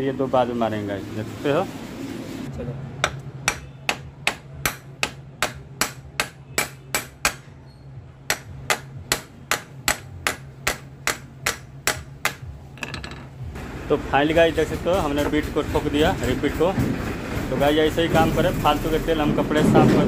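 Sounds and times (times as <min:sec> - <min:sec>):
hammer striking rivets on steel: 0:08.2 - 0:13.1.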